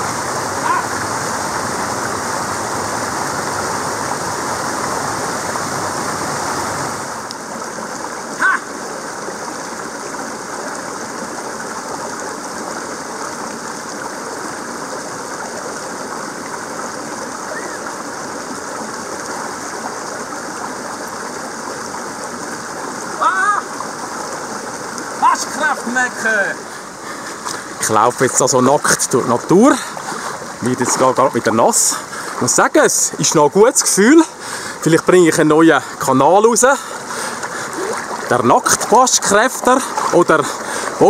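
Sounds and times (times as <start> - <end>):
stream rushing over boulders: 0.0 - 41.0.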